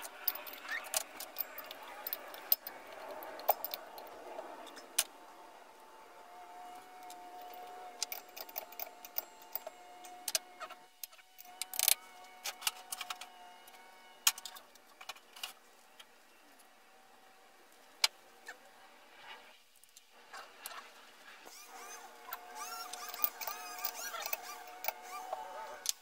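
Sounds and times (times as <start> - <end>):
metal tools clinking: 0.0 - 4.1, 7.1 - 10.2, 21.5 - 25.8.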